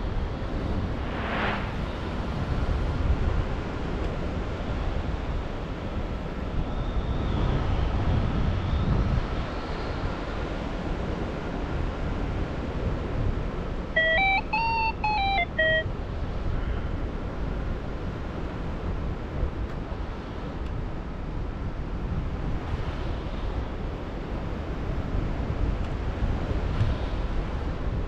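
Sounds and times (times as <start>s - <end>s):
wind rushing over microphone: 0.0s - 13.9s, 15.6s - 28.0s
electronic beeps stepping in pitch: 14.0s - 15.9s.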